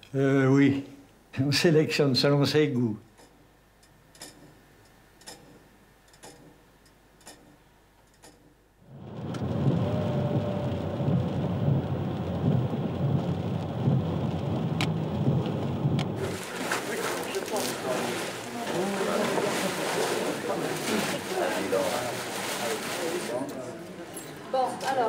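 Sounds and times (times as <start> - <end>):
clock ticking: 3.1 - 8.6
car driving in rain: 8.9 - 23.0.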